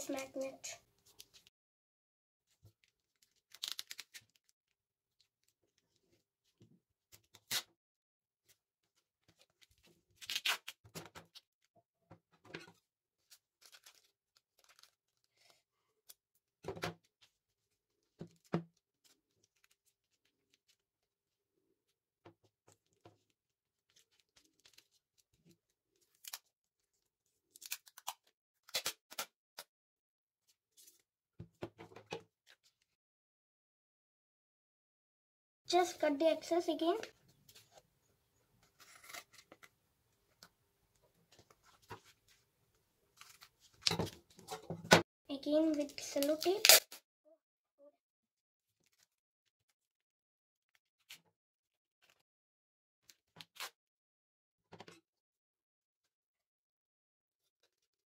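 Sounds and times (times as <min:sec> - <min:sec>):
tape and paper rustling: 0:02.7 - 0:04.5, 0:12.6 - 0:15.5, 0:23.9 - 0:25.3, 0:43.2 - 0:44.4, 0:45.7 - 0:47.0.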